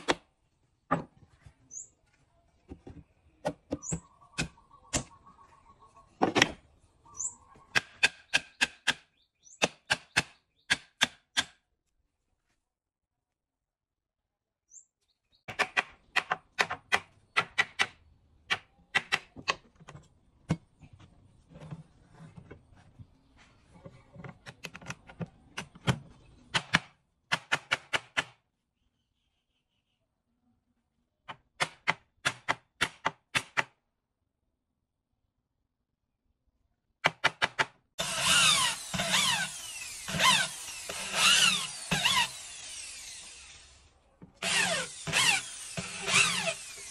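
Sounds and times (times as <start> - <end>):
bird chirps: 1.6 - 2.1, 3.2 - 6.2, 6.8 - 10.8, 14.7 - 15.5, 28.6 - 30.3.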